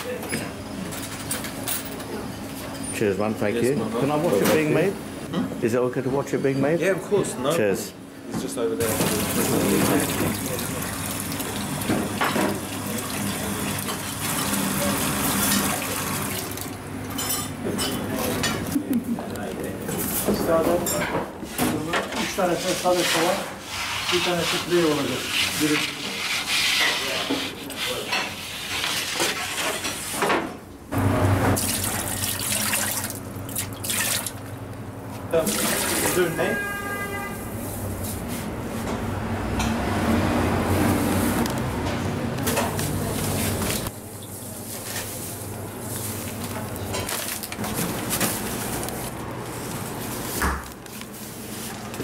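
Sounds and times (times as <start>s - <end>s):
metal peel scraping oven floor: 22.3s - 30.3s
water pouring into metal bowl: 31.6s - 34.4s.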